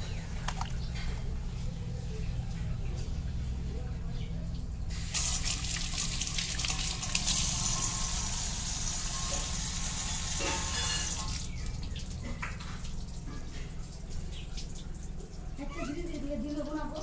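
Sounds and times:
steady low hum: 0:00.0 - 0:10.4
tap water pouring into steel bowl: 0:05.0 - 0:15.1.

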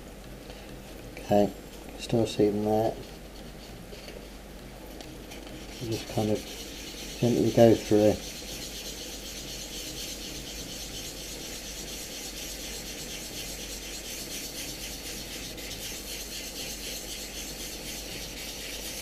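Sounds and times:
wet sandpaper rubbing back and forth: 0:05.5 - 0:19.0.

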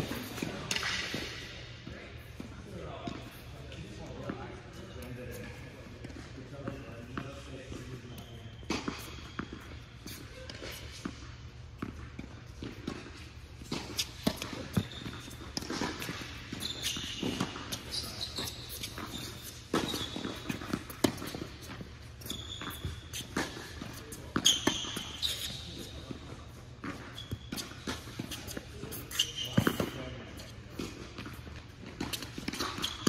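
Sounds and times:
sneaker squeaks on court: 0:02.3 - 0:33.0
tennis ball bouncing: 0:08.7 - 0:29.9
racquet hitting ball: 0:11.8 - 0:17.9, 0:18.7 - 0:22.0.

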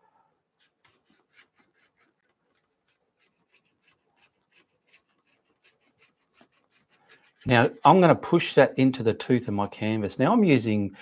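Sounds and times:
brush scratching paint on canvas: 0:00.5 - 0:09.1.

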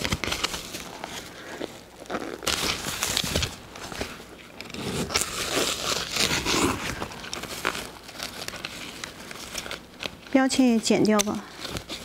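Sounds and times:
plastic wrap crinkling: 0:00.0 - 0:12.0
scissors cutting plastic: 0:04.6 - 0:12.0.

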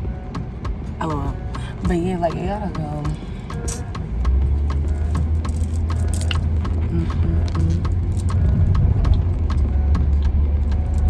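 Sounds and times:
engine and road rumble: 0:00.0 - 0:11.0
faint music: 0:00.0 - 0:11.0
regular ticking: 0:00.0 - 0:11.0.

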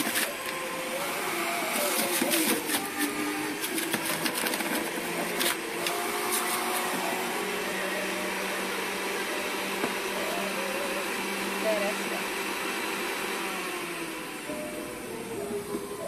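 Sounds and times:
crackly shredding of vegetables: 0:00.0 - 0:00.6, 0:01.7 - 0:07.0
electric juicer motor whirring: 0:00.0 - 0:16.0.

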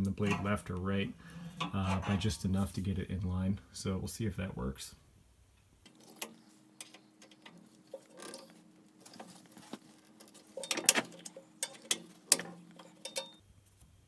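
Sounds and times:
screwdriver scraping on metal: 0:00.2 - 0:00.5, 0:01.6 - 0:02.3, 0:05.8 - 0:13.4.

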